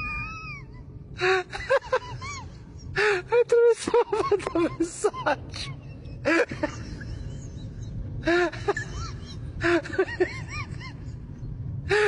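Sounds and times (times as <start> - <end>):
steady low rumble: 0.0 - 12.0
person laughing: 3.8 - 11.2.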